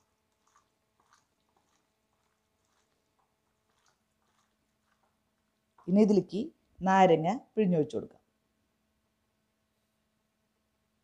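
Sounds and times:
hands squishing raw chicken: 0.0s - 6.1s.

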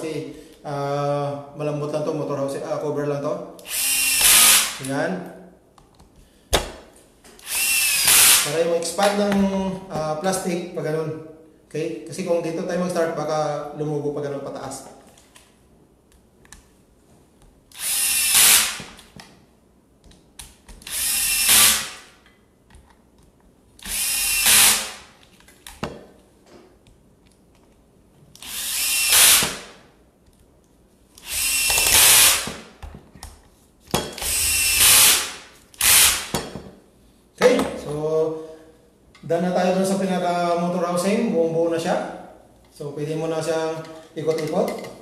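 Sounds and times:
cordless drill driving screws: 3.6s - 4.8s, 7.4s - 8.5s, 17.7s - 19.0s, 20.8s - 22.1s, 23.8s - 25.1s, 28.4s - 29.6s, 31.2s - 32.5s, 34.2s - 36.3s.

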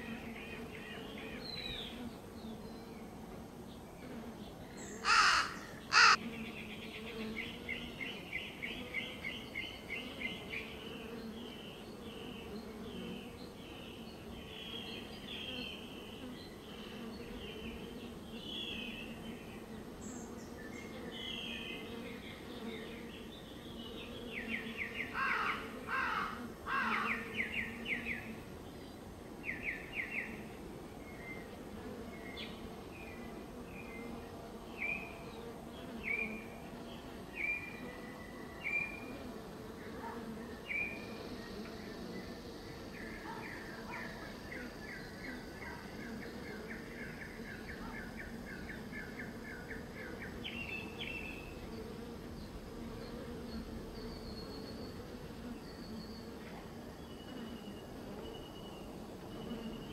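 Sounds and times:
honey bees buzzing: 0.0s - 59.9s
crows cawing: 5.0s - 6.2s, 25.2s - 27.1s.

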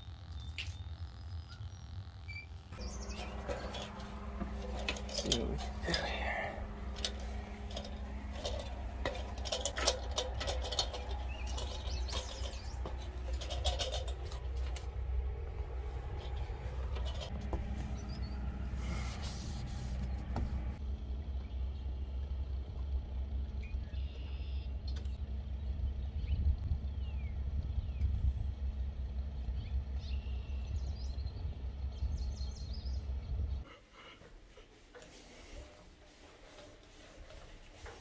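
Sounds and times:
steady low rumble: 0.0s - 33.6s
aluminium ladder clanking: 2.8s - 19.1s
faint bird chirps: 23.6s - 24.9s, 29.4s - 31.4s.

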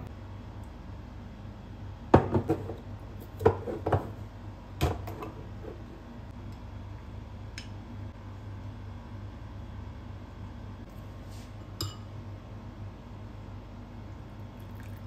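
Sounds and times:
steady low hum: 0.0s - 15.0s
dishes clinking and knocking: 2.2s - 2.8s, 3.4s - 4.2s.

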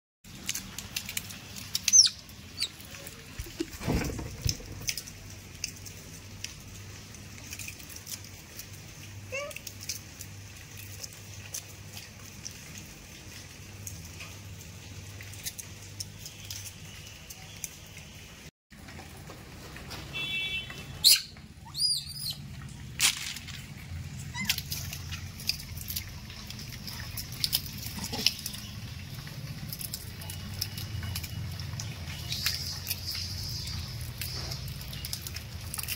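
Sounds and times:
clicks and rustles from chewing: 0.3s - 18.1s, 22.2s - 35.9s
monkeys high gliding calls: 1.9s - 2.9s, 21.0s - 22.4s.

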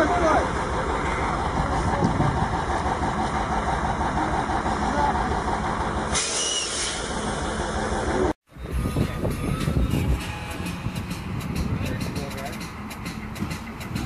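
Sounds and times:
truck diesel engine running: 0.0s - 14.0s
men's voices: 8.7s - 14.0s.

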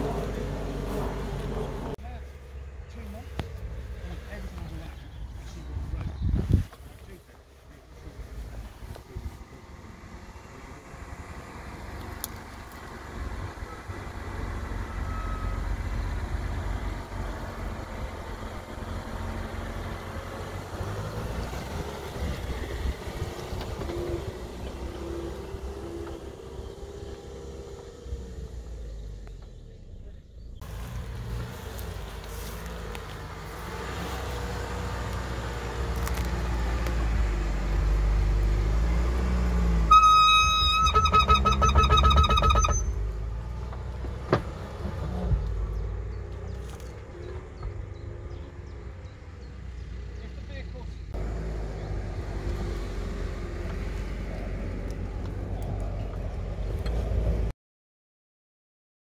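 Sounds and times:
vehicle driving through mud: 0.0s - 2.0s, 7.8s - 57.5s
engine low rumble: 0.0s - 57.5s
wind noise: 5.7s - 6.9s
high pitched pulsing tone: 39.9s - 43.1s.

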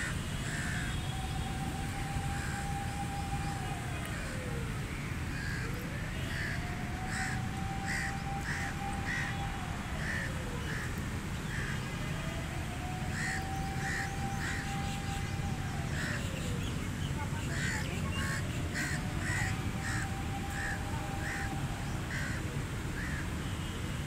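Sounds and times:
crows cawing: 5.3s - 11.8s, 13.1s - 15.2s, 17.5s - 23.2s
siren-like rising tone: 5.8s - 11.0s, 18.6s - 22.7s.

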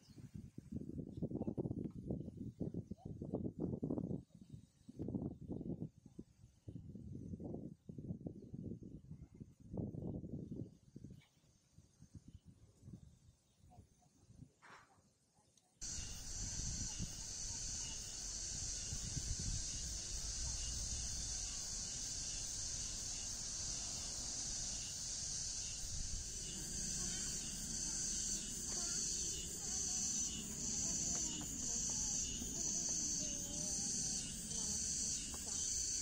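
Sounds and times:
high-pitched insect chorus: 15.8s - 36.0s.

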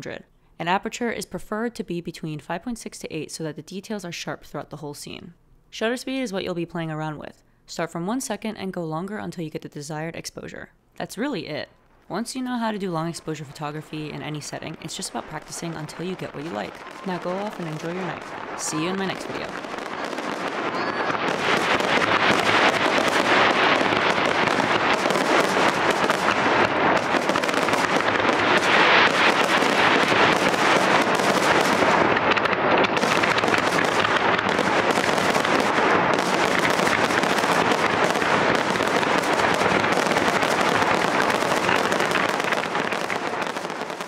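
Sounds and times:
fireworks bangs and crackling: 11.3s - 44.0s.

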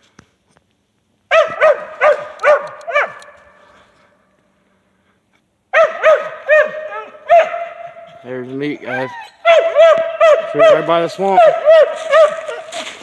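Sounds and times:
dog barking sharply: 1.3s - 3.4s, 5.7s - 8.1s, 9.4s - 12.8s.

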